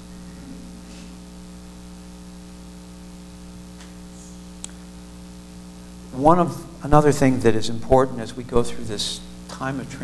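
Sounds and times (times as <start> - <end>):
electrical mains hum: 0.0 - 10.0
small click: 4.6 - 4.8.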